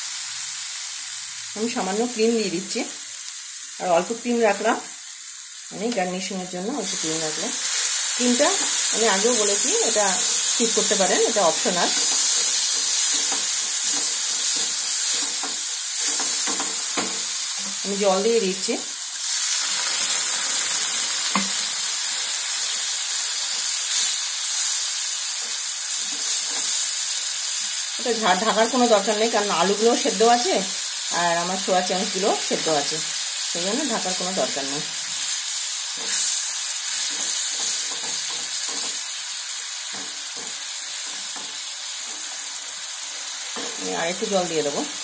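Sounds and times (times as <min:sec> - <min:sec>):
curry sizzling in frying pan: 0:00.0 - 0:45.0
spatula stirring and scraping pan: 0:06.9 - 0:17.8, 0:35.0 - 0:42.5.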